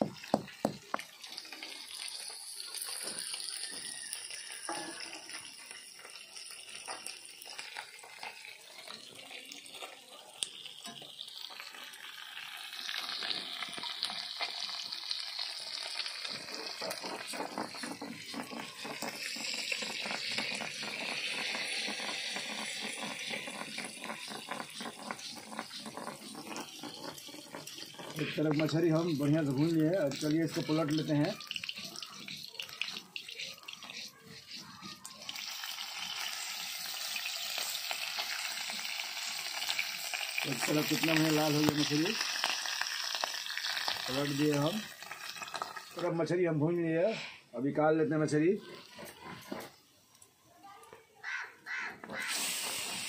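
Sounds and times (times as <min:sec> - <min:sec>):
stone roller knocking on stone: 0:00.0 - 0:01.0
fish sizzling in hot oil: 0:00.0 - 0:46.5, 0:52.0 - 0:53.0.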